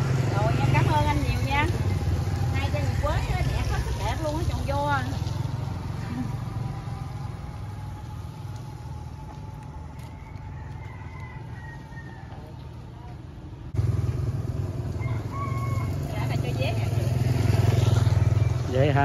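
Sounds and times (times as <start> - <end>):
vehicle engine running: 0.0 - 10.1, 13.7 - 19.0.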